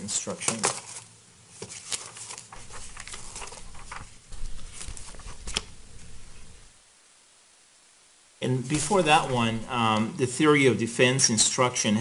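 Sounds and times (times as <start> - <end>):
paper crackling and pages turning: 0.4 - 6.8, 8.7 - 10.0
low hum: 2.6 - 6.8.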